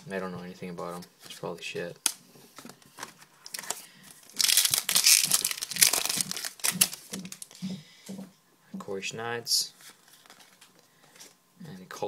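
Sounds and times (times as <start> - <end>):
plastic crinkling: 3.0 - 7.7.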